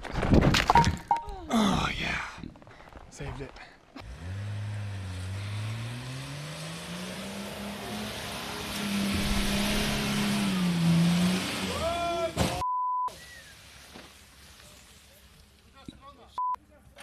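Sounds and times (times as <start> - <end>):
censor beep: 0.8 - 1.3, 12.6 - 13.1, 16.4 - 16.6
suv engine revving hard: 4.0 - 12.6
man shouting: 11.7 - 12.6.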